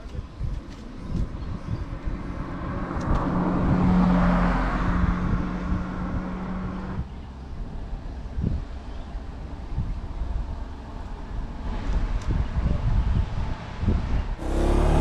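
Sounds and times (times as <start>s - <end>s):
road vehicle passing: 1.3s - 9.6s, 13.2s - 15.0s.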